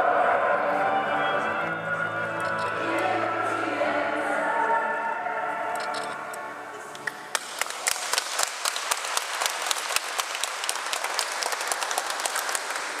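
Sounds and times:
person singing: 2.6s - 6.3s
audience applause: 7.3s - 13.0s.

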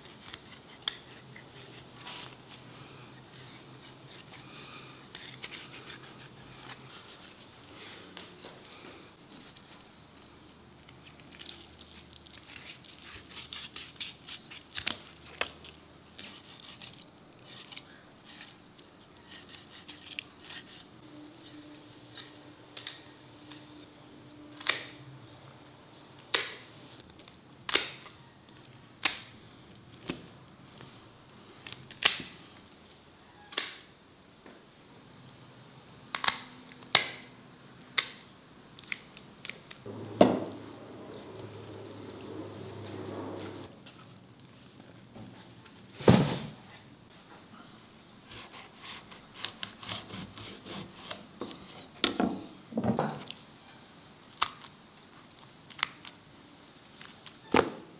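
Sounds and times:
knife cutting and scraping fish: 0.0s - 7.7s, 10.8s - 22.5s, 48.2s - 52.0s.

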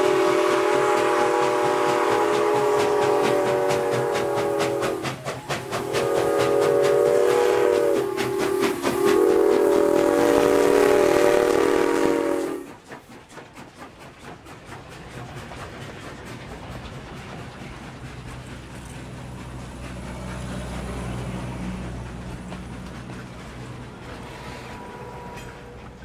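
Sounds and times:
steam locomotive whistle: 0.0s - 12.8s, 24.0s - 26.0s.

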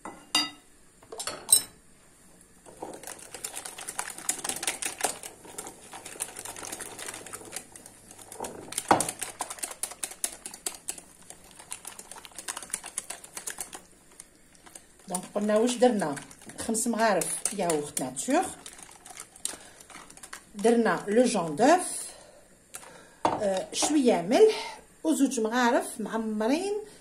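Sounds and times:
whisk beating in glass bowl: 2.9s - 13.9s, 14.5s - 19.2s.

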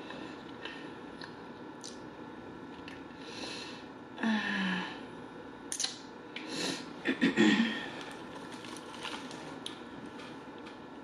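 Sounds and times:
wet mouth click: 5.7s - 6.0s.

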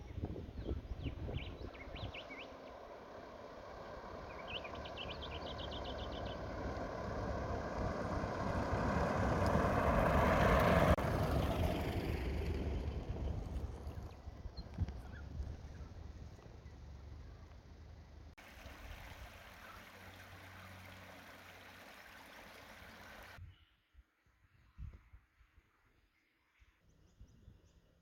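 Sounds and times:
birds chirping: 0.0s - 18.2s, 19.0s - 23.4s
vehicle engine passing: 1.4s - 23.4s.

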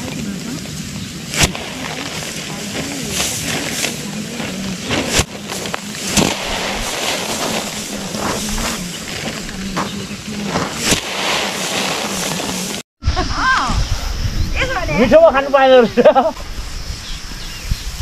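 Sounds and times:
rustle of dry straw: 0.0s - 12.8s
sheaves beaten against stone: 4.8s - 12.8s.

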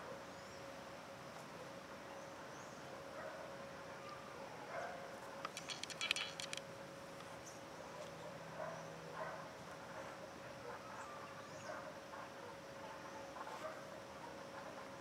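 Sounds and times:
rattling bird call: 5.5s - 6.6s.

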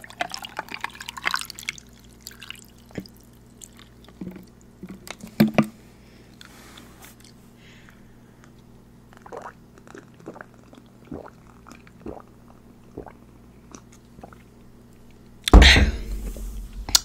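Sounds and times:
person gulping a drink: 0.0s - 4.5s, 9.1s - 14.5s
loud thump: 15.6s - 17.0s.

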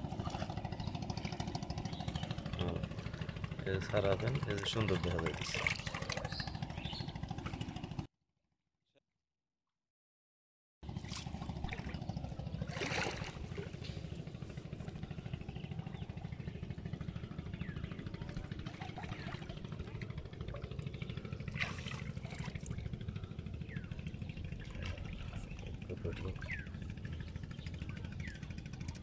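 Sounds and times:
water splashing and trickling: 0.0s - 8.1s, 10.9s - 29.0s
steady low rumble: 11.1s - 29.0s.

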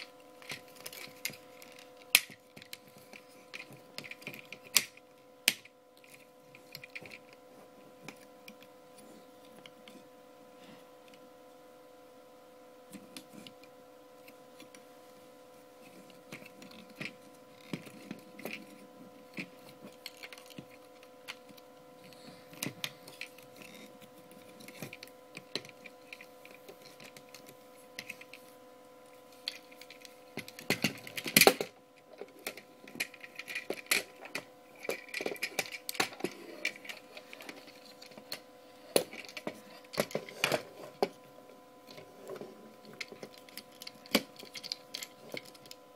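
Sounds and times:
steady hum: 0.0s - 45.9s
plastic toy parts clicking: 29.4s - 38.4s, 42.9s - 45.8s.

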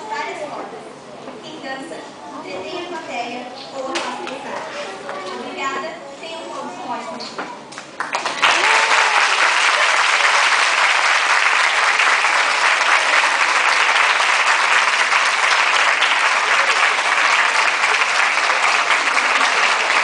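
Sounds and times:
audience applauding: 7.8s - 20.0s.

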